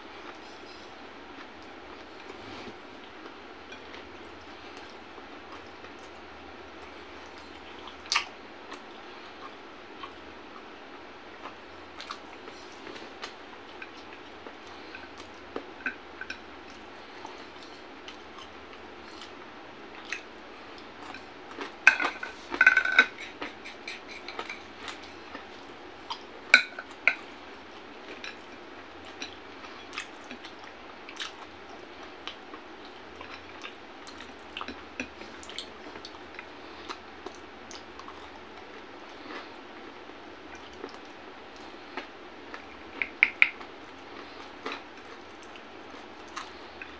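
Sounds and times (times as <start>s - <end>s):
ceramic dishes clinking: 21.9s - 23.2s.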